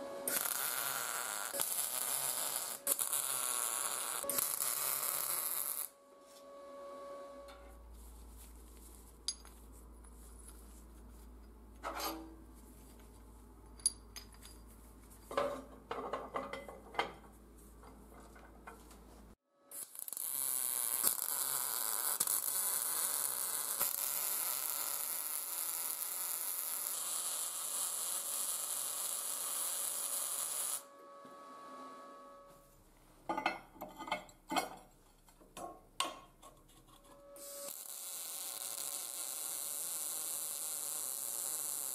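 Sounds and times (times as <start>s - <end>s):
welder arc hissing and crackling: 0.0s - 6.0s, 19.7s - 30.9s, 37.4s - 41.9s
steel parts clanking on a table: 13.7s - 17.3s, 33.3s - 37.2s.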